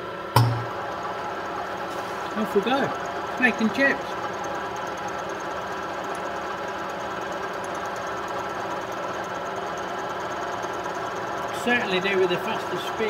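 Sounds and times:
milling machine humming: 0:00.0 - 0:13.0.

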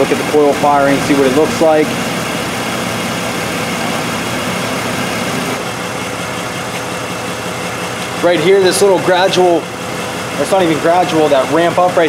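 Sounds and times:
misfiring engine idling: 0:00.0 - 0:12.0.

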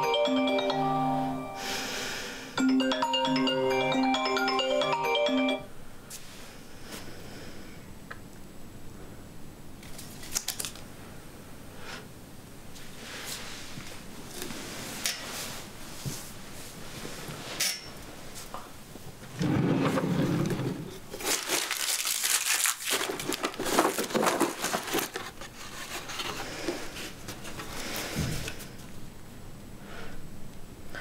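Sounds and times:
drawer sliding open: 0:19.3 - 0:21.0
rummaging through cables and paper: 0:20.9 - 0:28.8.

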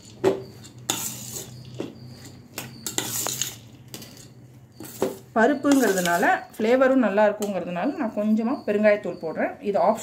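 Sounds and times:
spoon clinking against metal bowl: 0:00.0 - 0:06.6, 0:07.3 - 0:07.7.

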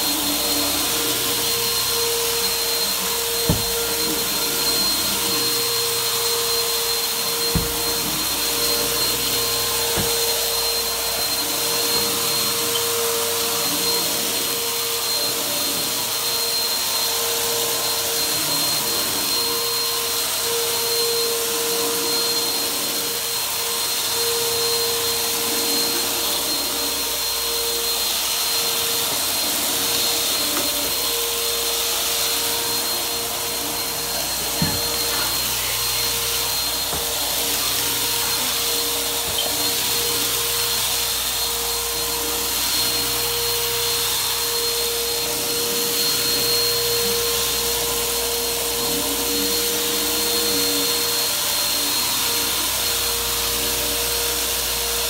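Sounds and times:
vacuum cleaner on carpet: 0:00.0 - 0:55.0.

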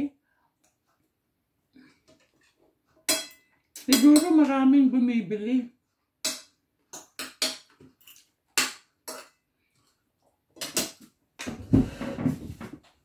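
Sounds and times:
cutlery clinking on plate: 0:03.0 - 0:04.3.

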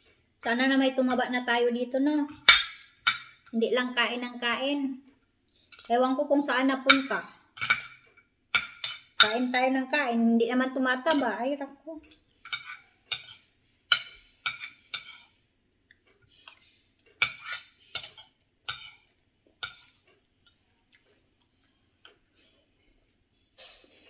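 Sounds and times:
fork clinking on shells and plate: 0:06.9 - 0:09.7, 0:12.0 - 0:15.3, 0:17.2 - 0:20.6.

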